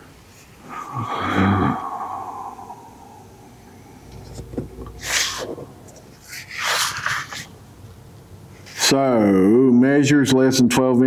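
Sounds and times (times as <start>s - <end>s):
paper sheets rustling: 6.2s - 7.5s.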